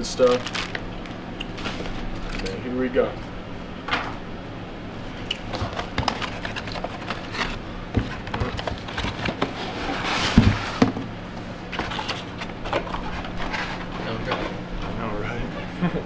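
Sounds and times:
packing scraping and rustling: 0.2s - 2.6s, 5.4s - 10.9s.

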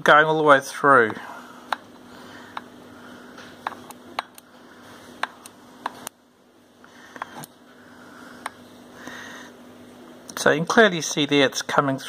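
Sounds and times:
steady low hum: 0.0s - 12.0s
electric sparking snaps: 5.2s - 6.2s.

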